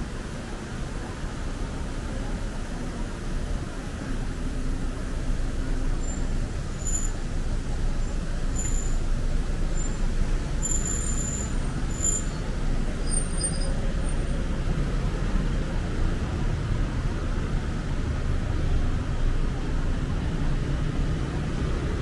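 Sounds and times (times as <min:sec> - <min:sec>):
cars rumbling on road: 0:00.0 - 0:22.0
faint high squeaks: 0:06.8 - 0:07.2, 0:10.6 - 0:12.5.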